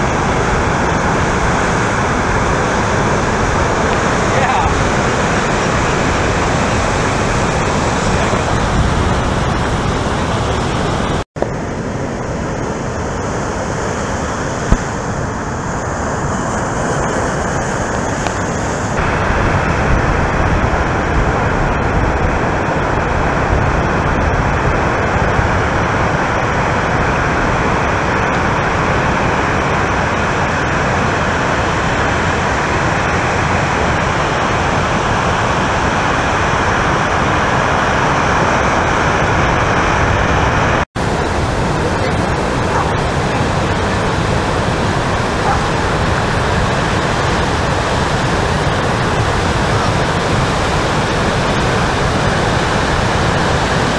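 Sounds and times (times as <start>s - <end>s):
big surf breaking: 0.0s - 53.9s.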